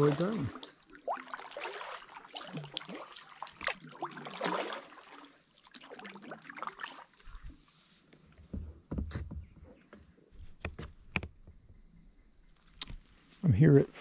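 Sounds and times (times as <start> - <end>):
kayak paddle splashing: 0.0 - 7.8.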